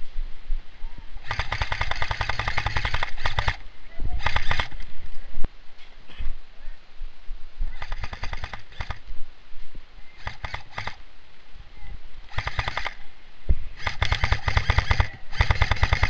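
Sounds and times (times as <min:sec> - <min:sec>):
airsoft rifle full-auto bursts: 0:01.2 - 0:03.6, 0:04.2 - 0:04.8, 0:07.8 - 0:09.0, 0:10.2 - 0:11.0, 0:12.3 - 0:13.0, 0:13.8 - 0:16.0.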